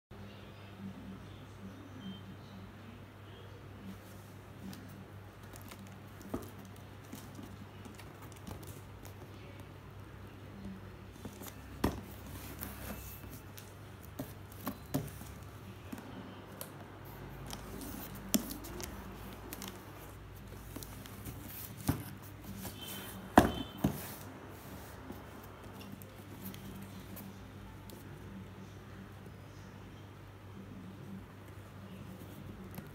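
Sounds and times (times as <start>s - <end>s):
cardboard box taps and knocks: 11.3s - 12.7s, 23.3s - 24.2s.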